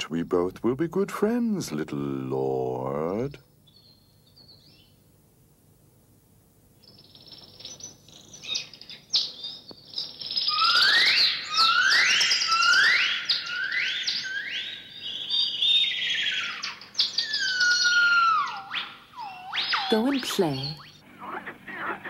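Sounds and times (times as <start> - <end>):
rising whistled bird chirps: 3.6 - 5.0, 6.8 - 21.0
falling bird whistles: 10.4 - 21.0.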